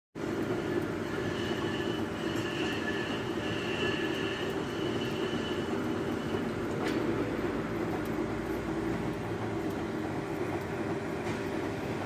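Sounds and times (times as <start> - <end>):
milling machine drone: 0.2 - 12.0
thin high whine: 0.7 - 6.9.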